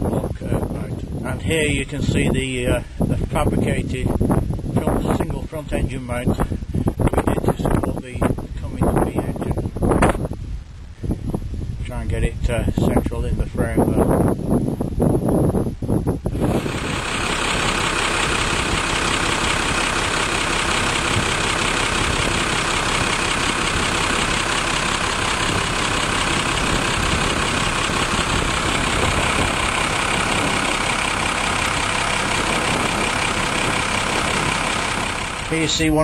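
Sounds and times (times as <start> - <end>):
diesel engine idling: 16.2 - 36.0.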